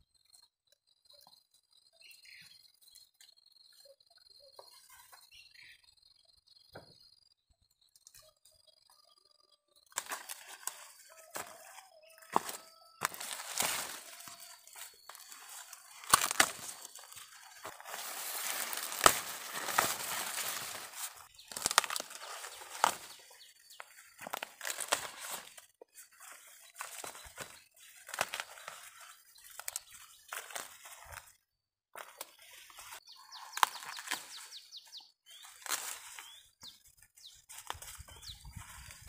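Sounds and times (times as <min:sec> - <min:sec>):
corn ears snapping off stalks: 0:09.9 - 0:25.6, 0:26.8 - 0:31.3, 0:33.5 - 0:34.4, 0:35.4 - 0:36.2
dry corn leaves rustling: 0:09.9 - 0:31.4, 0:32.0 - 0:39.0.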